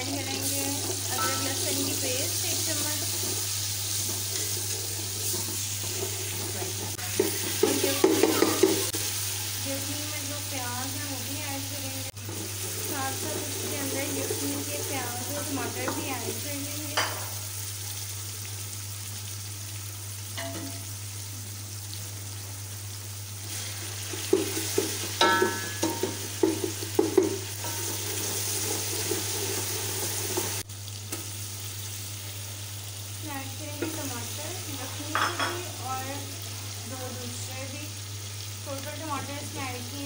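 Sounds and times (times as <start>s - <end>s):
onions sizzling in oil: 0.0s - 40.0s
wooden spoon scraping a pot: 2.6s - 8.9s, 12.2s - 16.4s.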